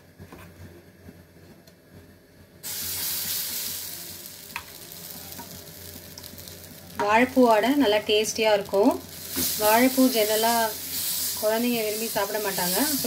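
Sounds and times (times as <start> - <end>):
batter sizzling on hot griddle: 2.6 - 13.0.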